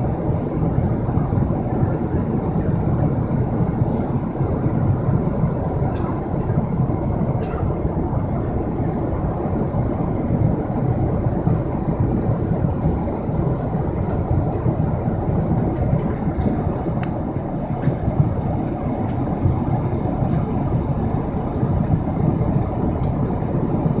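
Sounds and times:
airplane cabin noise: 0:00.0 - 0:24.0.

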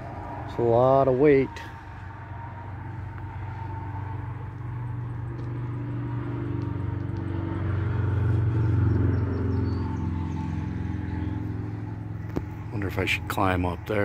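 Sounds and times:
diesel locomotive engine idling: 0:00.0 - 0:07.0.

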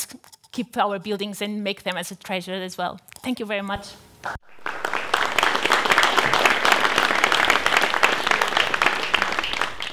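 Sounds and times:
audience applauding: 0:04.4 - 0:09.9.

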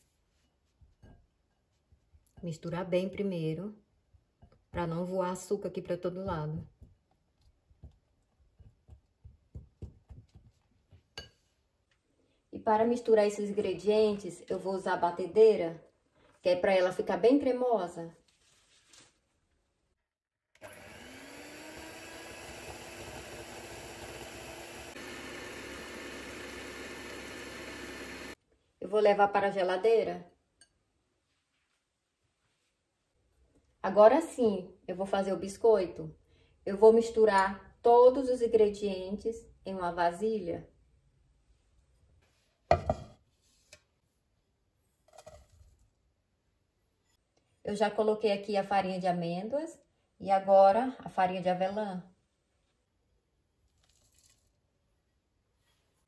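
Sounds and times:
electric hand mixer running: 0:20.6 - 0:28.4
flour pouring into a pot: 0:53.7 - 0:54.6.

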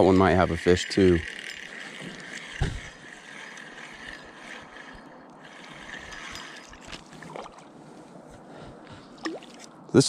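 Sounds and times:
fishing reel whirring: 0:00.0 - 0:07.5
water sloshing: 0:01.2 - 0:08.4, 0:09.1 - 0:09.8
fish splashing: 0:09.2 - 0:09.7.

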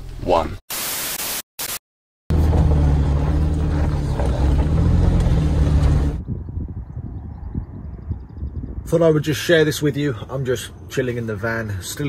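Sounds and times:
static hiss bursts: 0:00.7 - 0:01.8.

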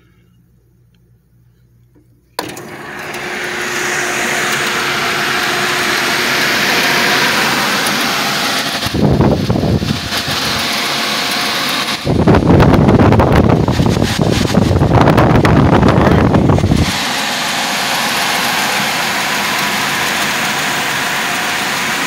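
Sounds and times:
blower rushing air: 0:02.4 - 0:22.0
air buffeting microphone: 0:03.7 - 0:10.8, 0:11.9 - 0:19.4.

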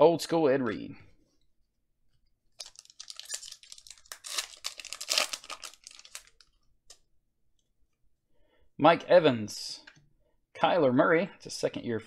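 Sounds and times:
foil wrapper crinkling and tearing: 0:02.6 - 0:06.6.

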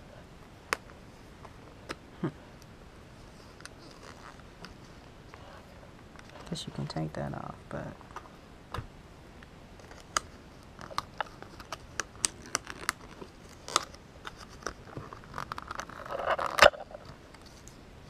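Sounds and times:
plastic packaging crinkling: 0:09.8 - 0:17.1.

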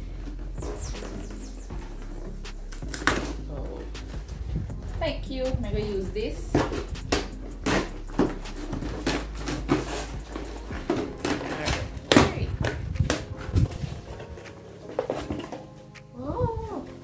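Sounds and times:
packing tape scraped and torn: 0:06.6 - 0:15.7.

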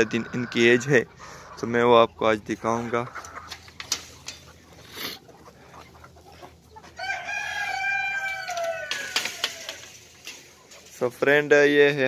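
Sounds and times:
cockerel crowing: 0:06.8 - 0:10.4.

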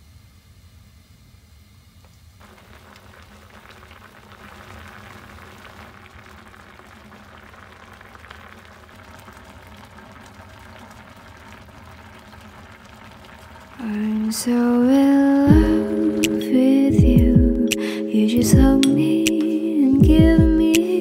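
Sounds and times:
hot pot bubbling with small pops: 0:02.0 - 0:16.4.

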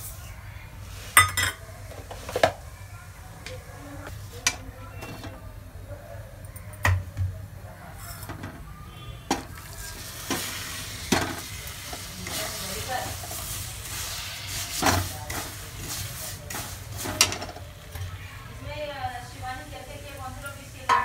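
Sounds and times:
sugar sizzling in hot pan: 0:09.2 - 0:21.0
metal spatula scraping a pan: 0:09.4 - 0:17.6.

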